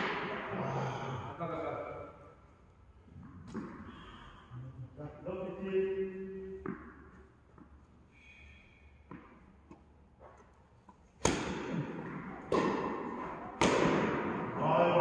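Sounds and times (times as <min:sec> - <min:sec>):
tennis ball hit by racket: 0:03.2 - 0:03.9, 0:06.6 - 0:07.7, 0:11.2 - 0:14.6.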